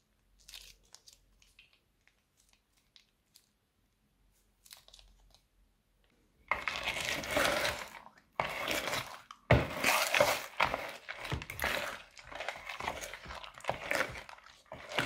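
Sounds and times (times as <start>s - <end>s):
crunchy slime crackling: 6.5s - 15.0s.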